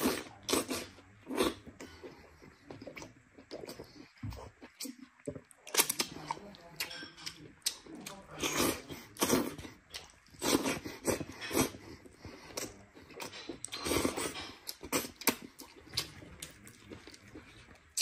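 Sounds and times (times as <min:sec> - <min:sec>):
chewing: 0:00.0 - 0:18.0
sucking and slurping: 0:07.6 - 0:18.0.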